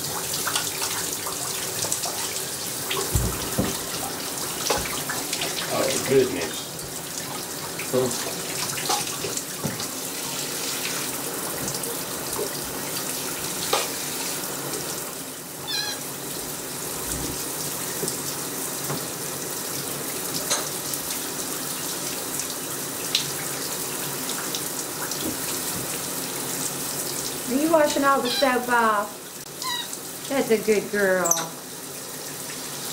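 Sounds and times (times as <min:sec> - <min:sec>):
water splashes: 0:00.0 - 0:14.9
shower spray running: 0:00.0 - 0:32.9
brief high squeak: 0:15.7 - 0:16.0.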